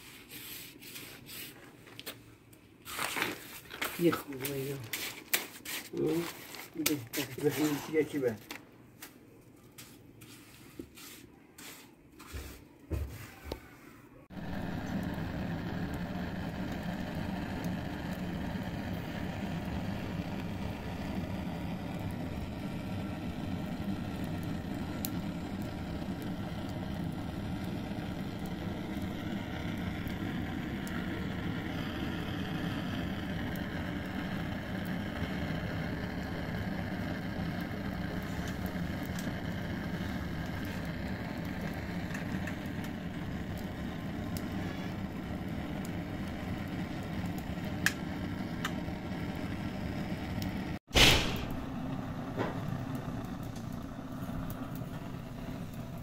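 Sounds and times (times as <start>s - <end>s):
roar of air blowing into fire: 14.3s - 56.0s.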